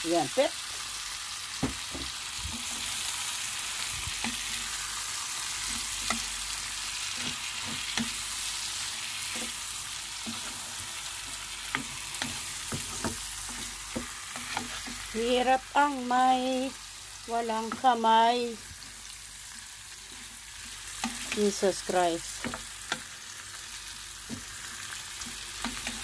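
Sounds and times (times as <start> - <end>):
shrimp sizzling in a pan: 0.0 - 26.0
wooden spatula scraping a pan: 4.1 - 15.6, 20.0 - 21.6.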